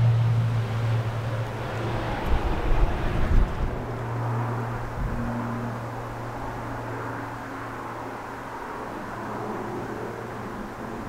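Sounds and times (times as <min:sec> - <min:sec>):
propeller aircraft droning: 0:00.0 - 0:11.0.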